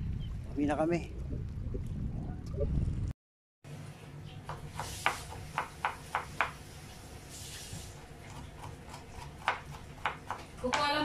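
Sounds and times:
knife chopping on plastic board: 0:04.5 - 0:06.6, 0:08.3 - 0:11.0.

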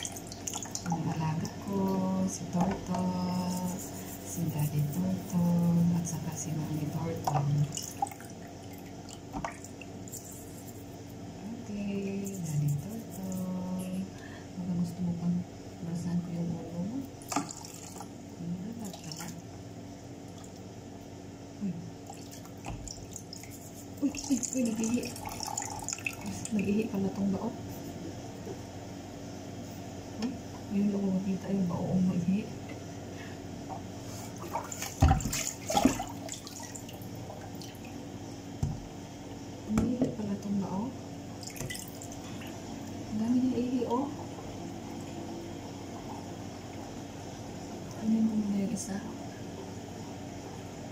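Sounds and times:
water splashing in a sink: 0:00.0 - 0:10.9, 0:17.1 - 0:19.5, 0:20.2 - 0:20.8, 0:22.0 - 0:27.2, 0:34.2 - 0:38.0, 0:41.4 - 0:47.0.

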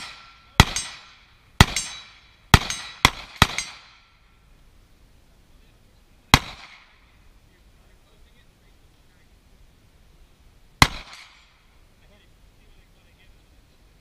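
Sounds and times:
rifle shots with echo: 0:00.0 - 0:04.1, 0:06.3 - 0:07.0, 0:10.8 - 0:11.6.

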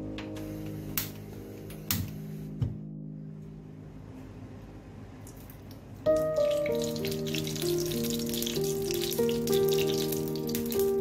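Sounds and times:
instrumental music: 0:00.0 - 0:04.4, 0:06.0 - 0:11.0
ghee sizzling and crackling: 0:06.1 - 0:11.0.

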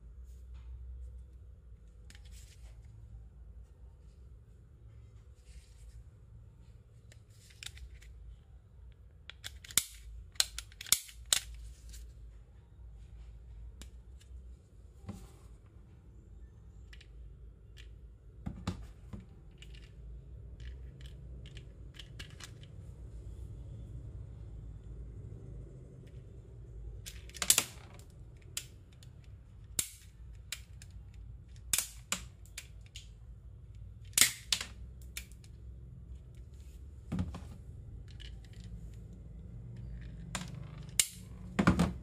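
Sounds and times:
plastic toy pistol clicking: 0:09.3 - 0:11.6, 0:29.7 - 0:30.9, 0:31.6 - 0:33.1, 0:34.1 - 0:35.4.

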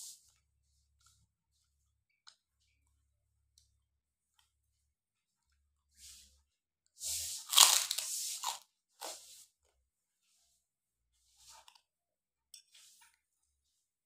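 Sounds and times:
crunching cracker: 0:07.4 - 0:09.2.

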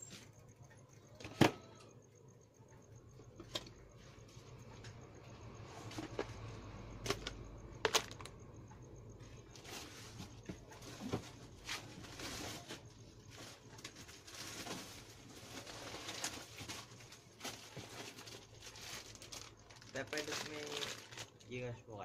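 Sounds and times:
rustling of goods: 0:03.0 - 0:21.8.

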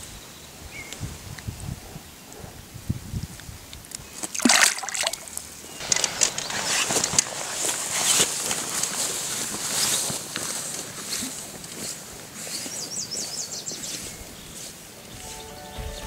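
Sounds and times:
footsteps through tall grass: 0:05.8 - 0:16.0.

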